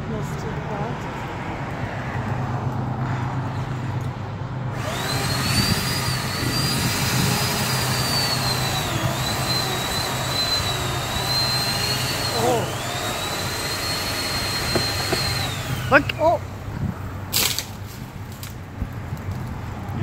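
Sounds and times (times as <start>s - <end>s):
chainsaw revving: 4.7s - 16.4s.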